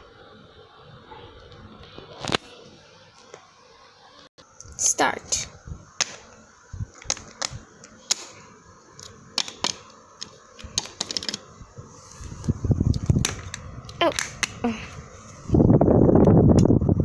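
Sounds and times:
low handling rumble: 11.4s - 17.0s.

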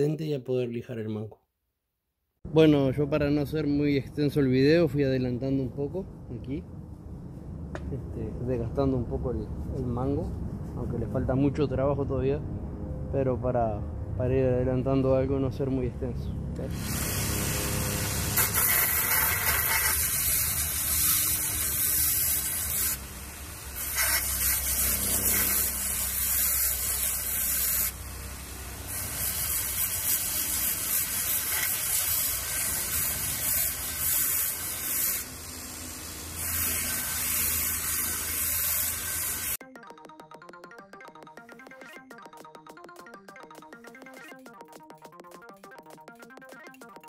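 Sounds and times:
power sander on wood: 23.8s - 28.0s, 28.8s - 39.6s.

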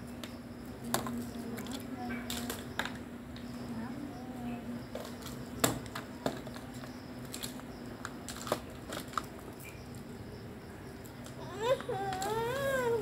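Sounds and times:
steady low hum: 0.0s - 13.0s
child's voice: 11.4s - 13.0s.

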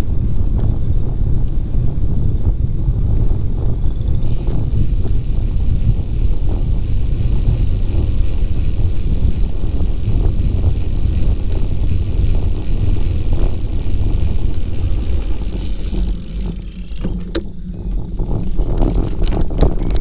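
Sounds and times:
bicycle rumbling on trail: 0.0s - 20.0s
wind rushing over microphone: 0.0s - 20.0s
sharp clicks: 4.2s - 17.5s.

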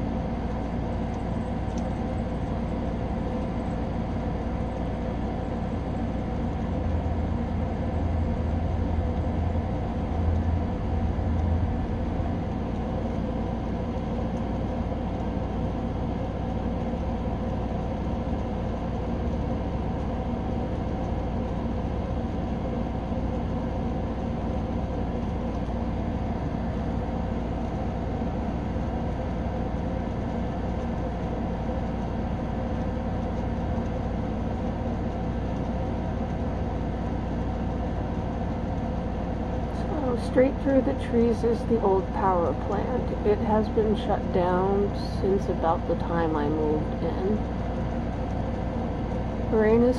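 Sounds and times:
street ambience hum: 0.0s - 19.2s, 36.6s - 49.9s.

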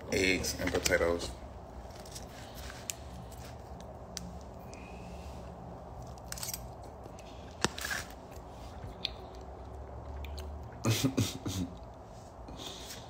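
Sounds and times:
person chewing food: 6.9s - 10.9s.

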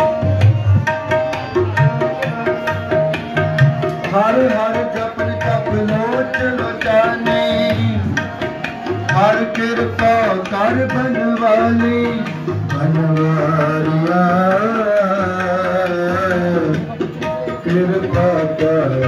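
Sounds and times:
tabla drumming: 0.0s - 19.0s.

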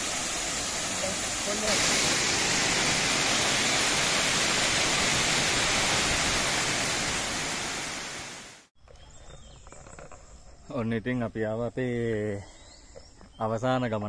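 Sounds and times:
waterfall rushing: 0.0s - 8.7s.

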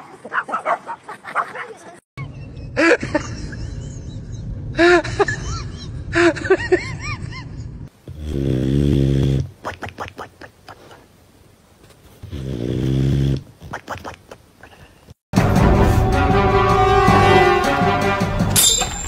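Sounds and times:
dog snoring: 8.1s - 9.5s
clicks and snuffles: 13.4s - 15.2s.

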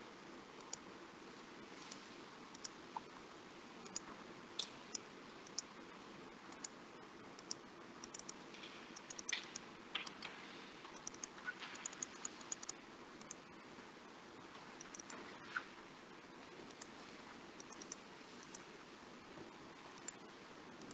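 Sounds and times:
low hiss: 0.0s - 20.9s
computer keyboard clicking: 7.4s - 8.4s, 11.0s - 13.4s.

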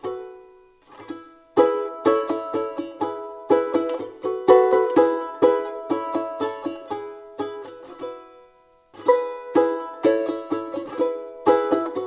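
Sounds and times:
plucked-string tune: 0.0s - 12.0s.

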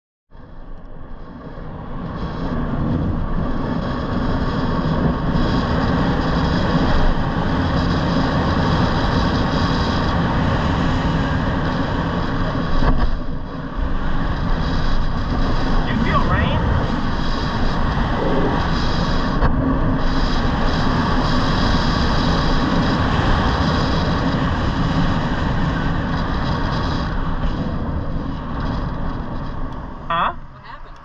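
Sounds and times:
scooter road noise on asphalt: 0.3s - 31.0s
wind rushing over microphone: 0.3s - 31.0s.

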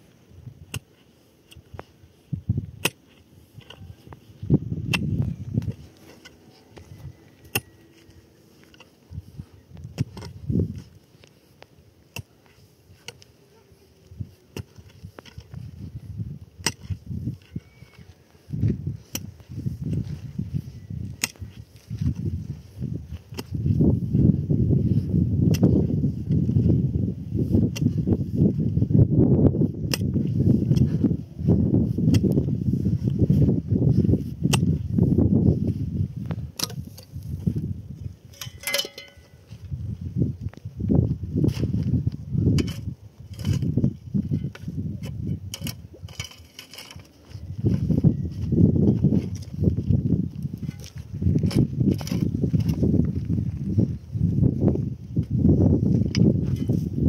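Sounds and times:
shovel scraping dirt and stones: 0.0s - 29.0s, 29.6s - 40.5s, 41.1s - 57.0s
ringing metal clatter: 38.3s - 39.4s
metal blade knocking on rock: 38.4s - 39.4s.

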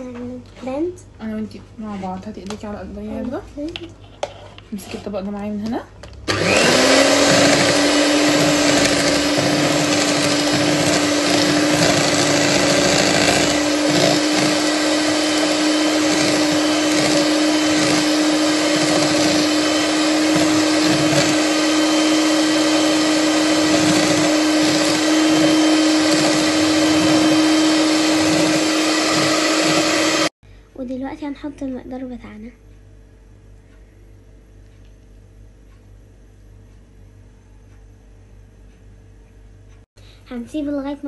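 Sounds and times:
electric hand mixer whining: 6.3s - 30.4s.

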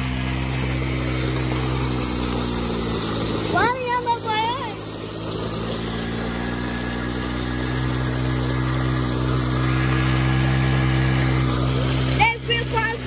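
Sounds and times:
motorcycle engine running: 0.0s - 13.0s.

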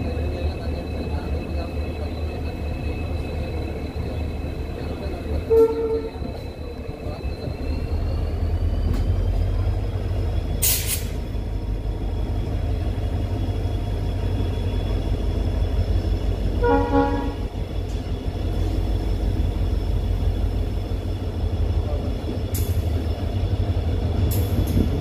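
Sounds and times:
train rumbling on rails: 0.0s - 25.0s
train horn blast: 5.4s - 6.3s, 16.6s - 17.6s
brief hiss: 10.6s - 11.2s.

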